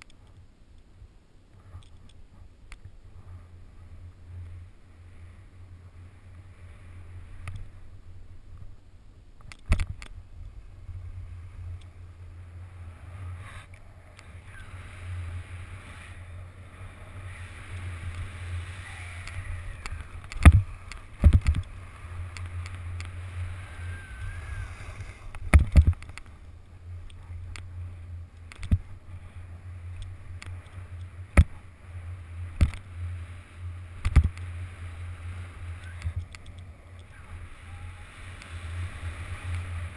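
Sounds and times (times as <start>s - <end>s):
low rumble: 0.4s - 39.9s
skis rushing on snow: 10.6s - 26.6s, 28.7s - 39.9s.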